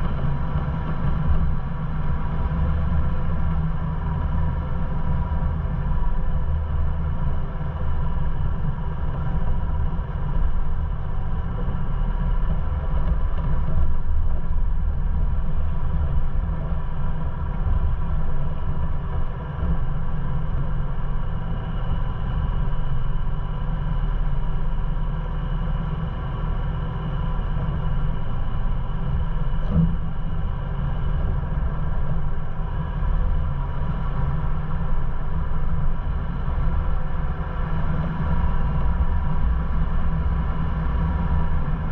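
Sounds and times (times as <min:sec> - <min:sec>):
vehicle rumbling over rocks: 0:28.6 - 0:41.9.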